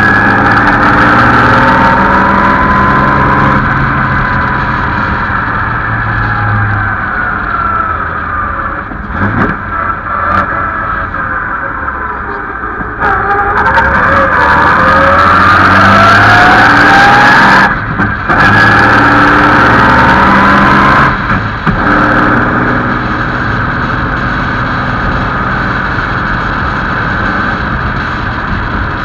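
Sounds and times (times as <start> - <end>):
racing car engine accelerating: 0.0 - 29.0.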